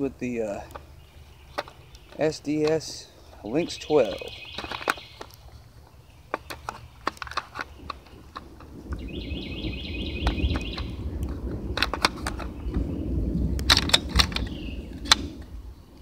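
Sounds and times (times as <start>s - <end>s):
shotgun clicks and rattles: 0.5s - 0.9s, 1.5s - 5.5s, 6.3s - 9.1s, 10.2s - 15.5s
bird trilling: 0.8s - 11.2s, 14.3s - 15.2s
low rumble: 7.7s - 16.0s.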